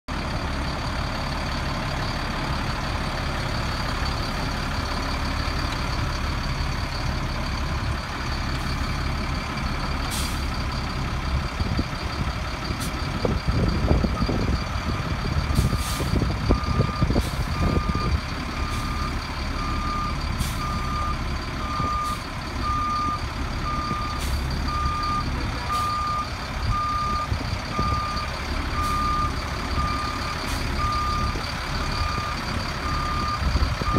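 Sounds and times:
diesel truck engine running: 0.1s - 33.9s
backup alarm beeping: 16.5s - 33.9s.

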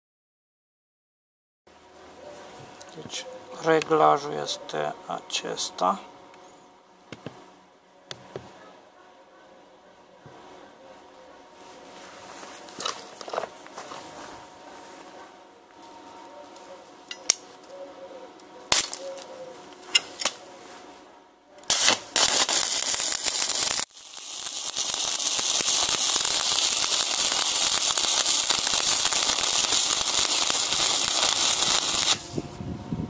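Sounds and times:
welding arc crackling hiss: 18.7s - 19.0s, 21.6s - 32.4s.

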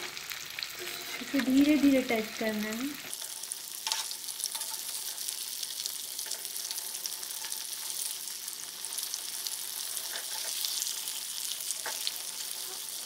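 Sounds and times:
chicken sizzling in hot oil: 0.0s - 13.0s.

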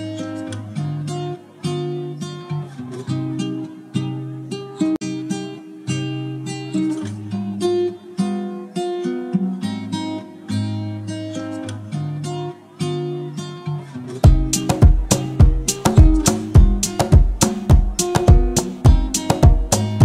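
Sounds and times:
acoustic guitar chords: 0.0s - 20.0s
drum hits: 14.2s - 20.0s.

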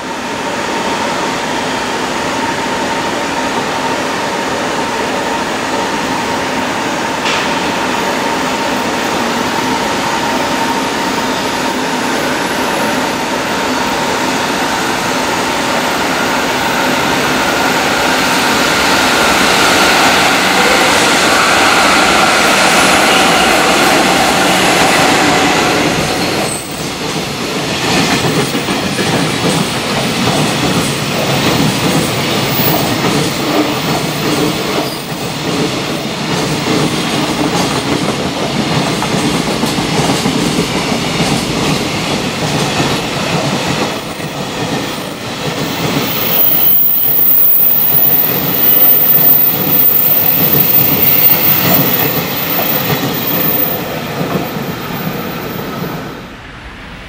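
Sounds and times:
train wheels clacking over joints: 26.1s - 47.0s.

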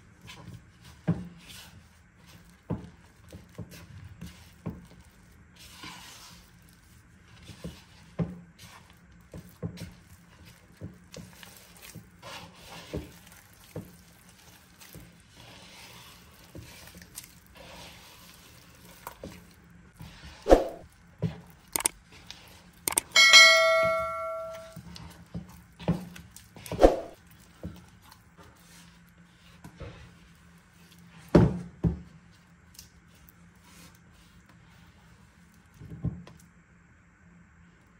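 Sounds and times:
spatula mixing sticky dough: 0.0s - 23.1s, 24.6s - 36.4s
click and bell-like ding: 22.9s - 24.8s.

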